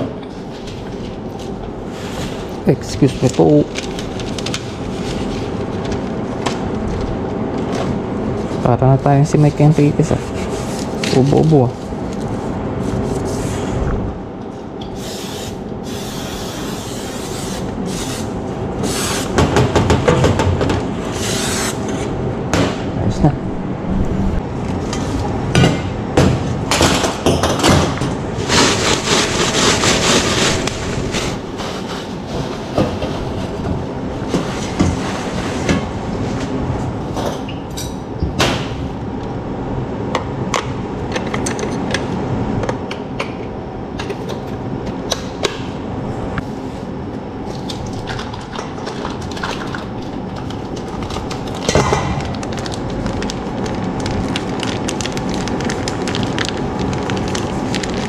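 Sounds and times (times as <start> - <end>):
steady low hum: 0.0 - 58.0
hiss: 15.0 - 18.2.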